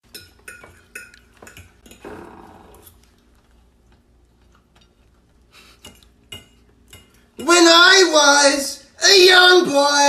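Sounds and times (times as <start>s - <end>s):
cutlery clinking on plates: 0.0s - 2.2s, 5.7s - 7.7s.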